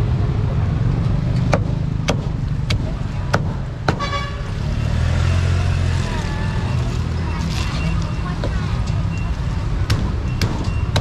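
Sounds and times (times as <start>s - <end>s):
traffic rumble: 0.0s - 11.0s
car horn toot: 4.0s - 4.5s.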